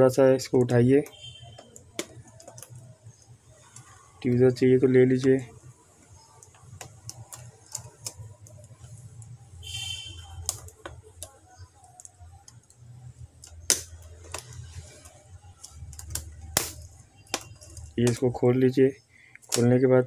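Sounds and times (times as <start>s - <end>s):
plastic clicks and snaps: 0.6s - 4.0s, 6.0s - 18.2s, 19.3s - 19.7s.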